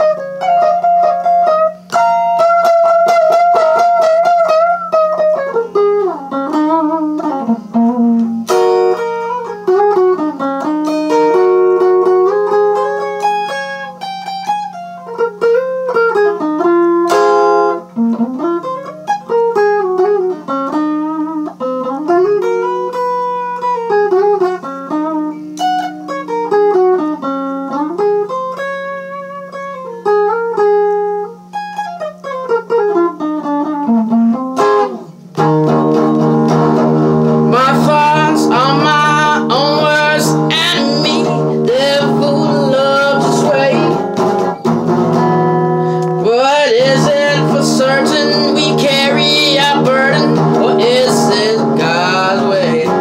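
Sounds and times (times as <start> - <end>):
acoustic guitar blues melody: 0.0 - 53.0
strummed guitar chords: 0.0 - 53.0
person singing: 37.4 - 44.6, 45.8 - 53.0.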